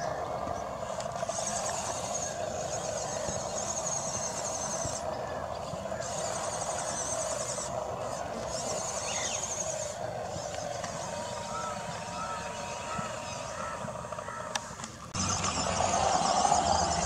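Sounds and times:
steady low hum: 0.0s - 17.0s
high pulsing insect buzz: 5.9s - 13.6s.

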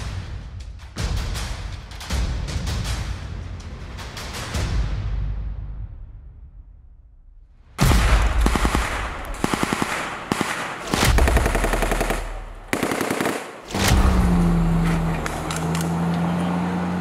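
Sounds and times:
automatic rifle gunfire: 7.9s - 13.8s
military truck engine running: 11.1s - 17.0s.

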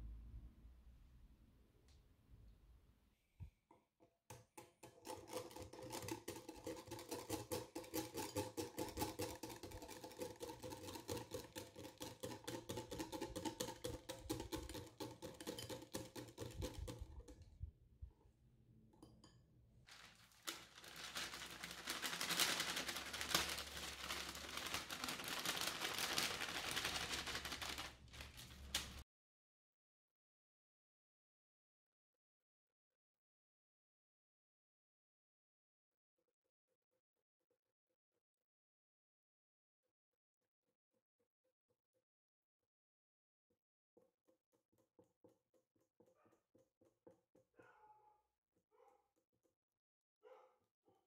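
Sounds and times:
whisk scraping glass bowl: 4.6s - 17.5s.

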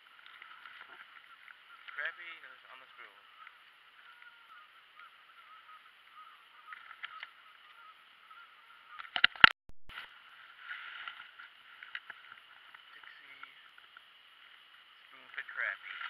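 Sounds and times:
faint steady hiss: 10.0s - 16.0s.

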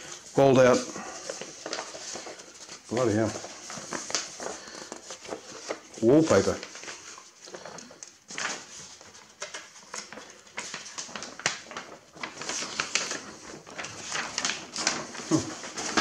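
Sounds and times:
paper rustling and crackling: 0.0s - 16.0s.

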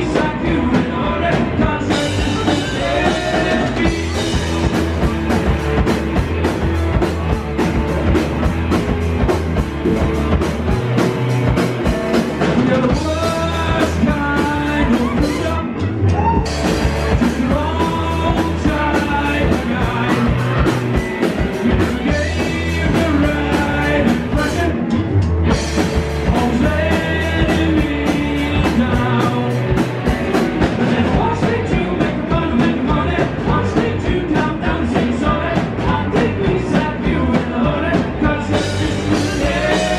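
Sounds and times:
man singing: 0.0s - 5.1s, 12.4s - 25.2s, 26.2s - 39.9s
rock band playing live: 0.0s - 39.9s.

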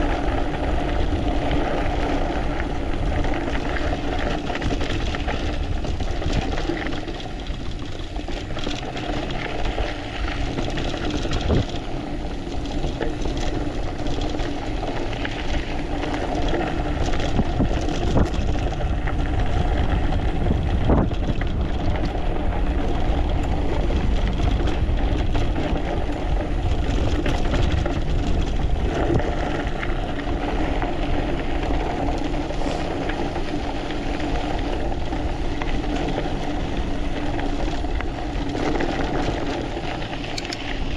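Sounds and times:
knobby tyre noise: 0.0s - 40.9s
stones and bike parts rattling: 0.0s - 40.9s
wind rumble on microphone: 0.0s - 40.9s.

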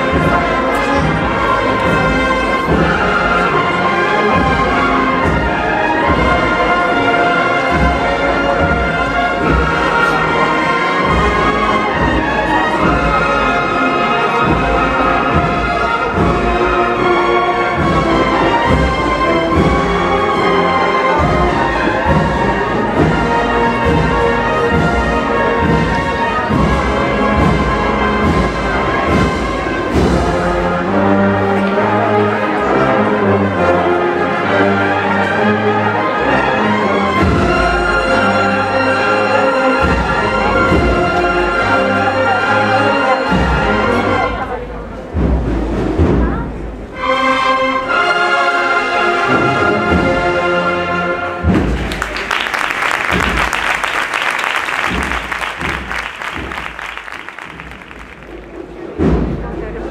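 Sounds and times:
drumbeat: 0.0s - 13.7s, 14.4s - 30.6s, 51.4s - 59.8s
brass band playing a march: 0.0s - 59.9s
deep low brass notes: 0.0s - 59.9s.

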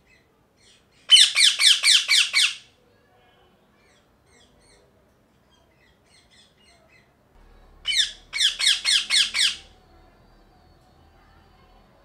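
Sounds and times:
parakeet shrill squawks: 1.1s - 2.6s, 7.8s - 9.8s.

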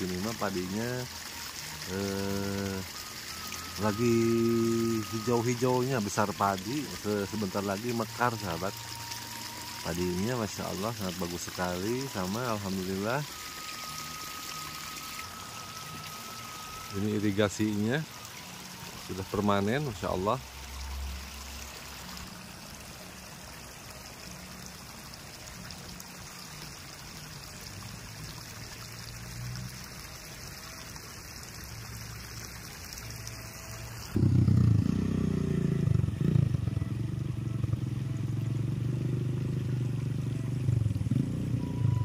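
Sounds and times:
water flowing in a channel: 0.0s - 42.0s
loud low sound: 34.2s - 36.7s.

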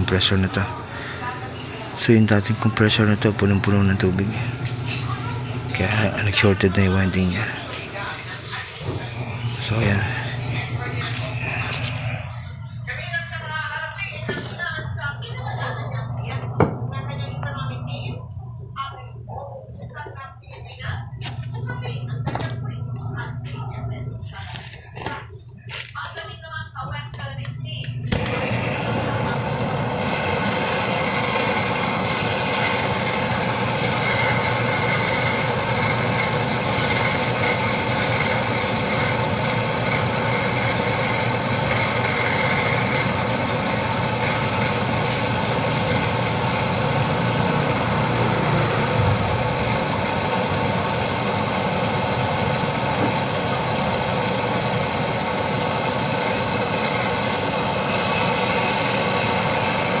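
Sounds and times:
gas torch hissing: 0.0s - 18.1s, 27.2s - 60.0s.

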